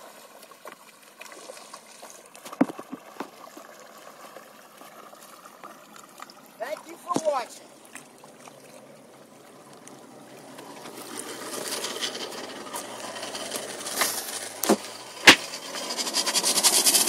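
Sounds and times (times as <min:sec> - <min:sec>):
hiss: 0:11.2 - 0:17.0.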